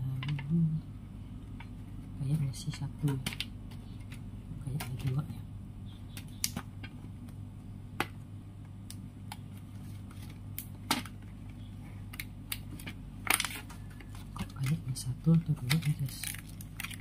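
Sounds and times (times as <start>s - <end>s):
steady low hum: 0.0s - 17.0s
foil trays crinkling: 9.4s - 17.0s.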